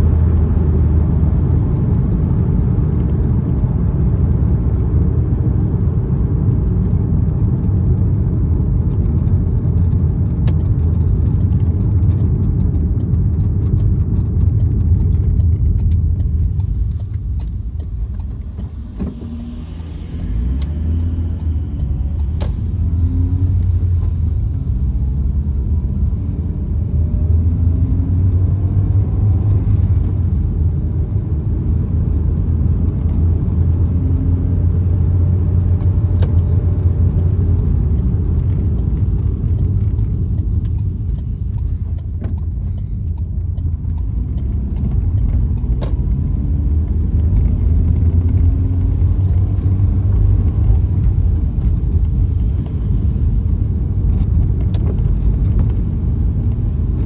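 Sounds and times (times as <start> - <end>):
car engine and tyre rumble: 0.0 - 57.0
sharp ticks: 10.3 - 22.4, 35.8 - 46.1.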